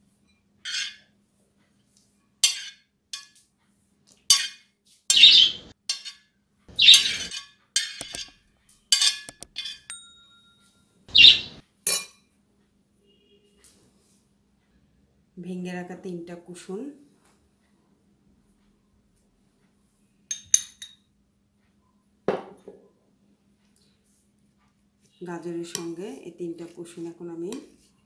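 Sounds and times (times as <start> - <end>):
spoon scraping ceramic plate: 0.7 - 1.1, 4.3 - 8.3, 8.9 - 9.9
clinks: 9.0 - 10.7.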